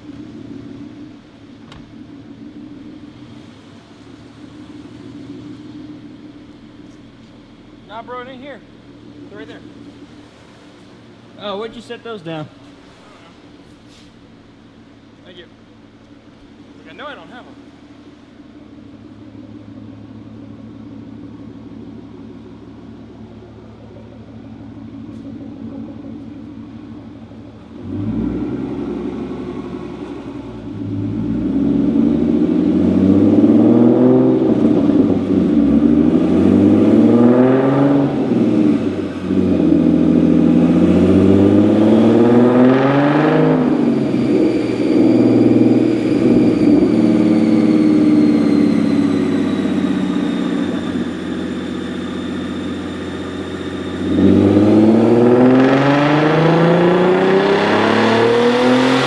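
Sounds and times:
car engine revving under load: 0.0s - 59.0s
high whistle: 43.9s - 52.8s.

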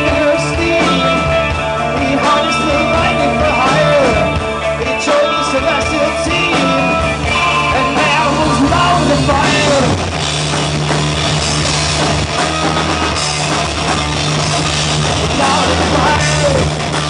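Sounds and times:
man singing: 0.0s - 10.1s, 15.3s - 16.7s
live rock band playing: 0.0s - 17.0s.

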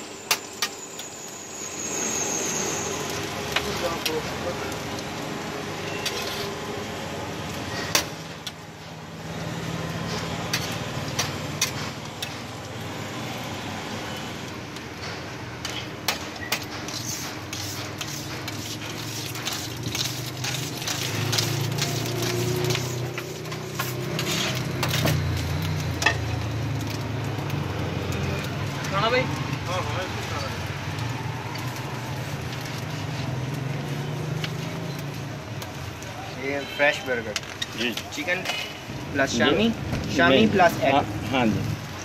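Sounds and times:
burger patties sizzling: 0.0s - 42.0s
metal spatula scraping griddle: 5.6s - 6.9s, 9.9s - 12.5s, 15.1s - 27.0s, 32.0s - 35.2s, 36.6s - 39.5s.

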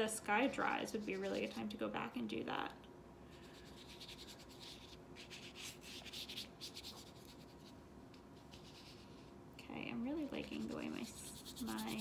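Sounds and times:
paintbrush scrubbing on paper: 0.3s - 1.8s, 3.4s - 7.8s, 8.4s - 9.4s, 10.1s - 12.0s.

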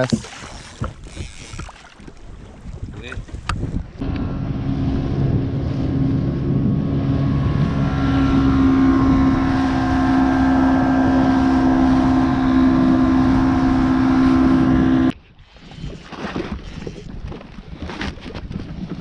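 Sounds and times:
outboard motor droning: 0.0s - 15.2s.

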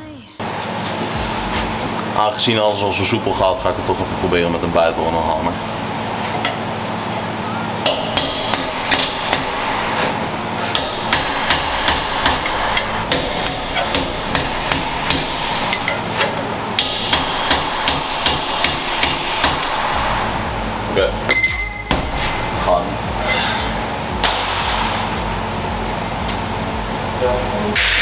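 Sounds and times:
hammer striking steel chisel: 7.8s - 10.0s, 10.7s - 19.8s, 21.3s - 22.2s.

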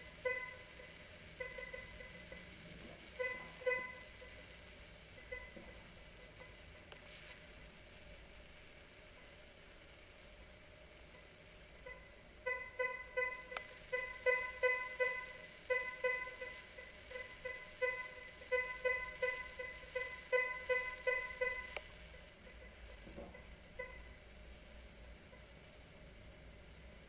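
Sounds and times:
metal detector beeps: 0.2s - 0.7s, 3.2s - 4.1s, 12.5s - 21.8s.

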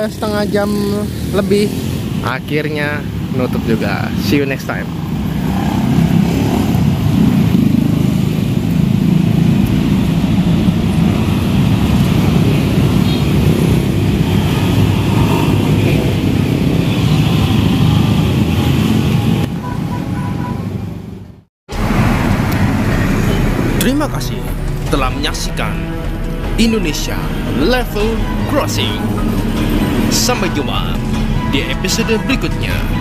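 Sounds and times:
motorcycles and cars driving past: 0.0s - 33.0s.

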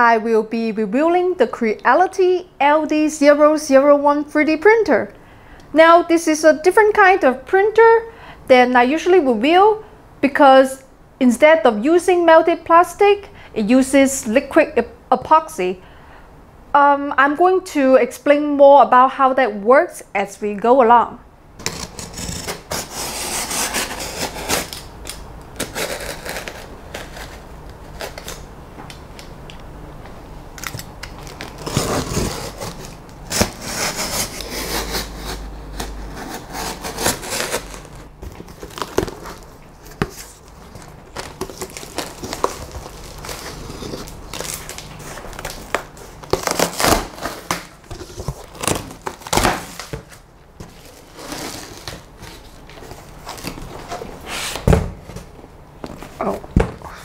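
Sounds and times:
box cutter slicing tape: 21.6s - 28.4s, 31.5s - 38.0s, 46.2s - 50.0s
foam packing rustling: 21.6s - 28.5s, 30.6s - 56.4s.

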